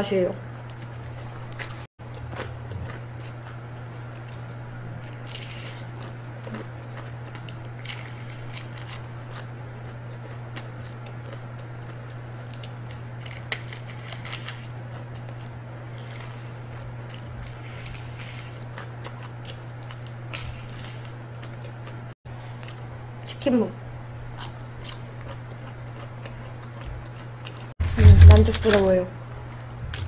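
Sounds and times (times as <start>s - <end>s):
low hum: 0.0s - 5.4s, 27.8s - 30.0s
crunchy chewing: 0.5s - 22.9s, 24.2s - 28.0s
crust crackling: 12.4s - 22.0s, 27.4s - 30.0s.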